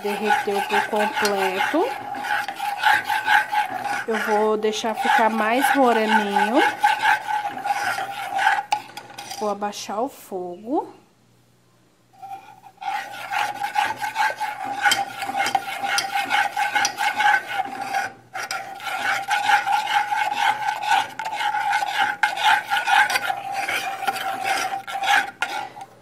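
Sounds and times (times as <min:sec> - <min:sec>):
metal spoon scraping saucepan: 0:00.0 - 0:09.6, 0:12.2 - 0:26.0.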